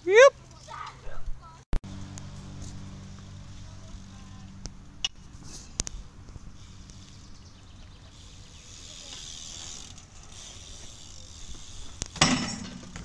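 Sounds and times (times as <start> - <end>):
bike tyres hissing on asphalt: 5.3 - 12.2
bike knocking on ramp: 12.0 - 13.0.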